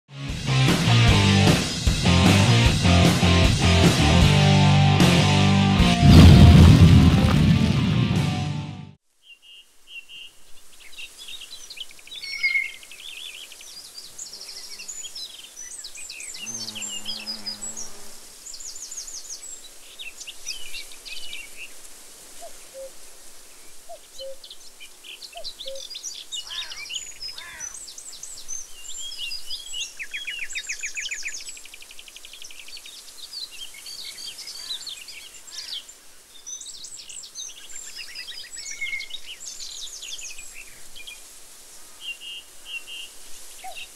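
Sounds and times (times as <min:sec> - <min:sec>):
songbirds chirping and trilling: 0:09.2 - 0:21.8, 0:22.4 - 0:43.9.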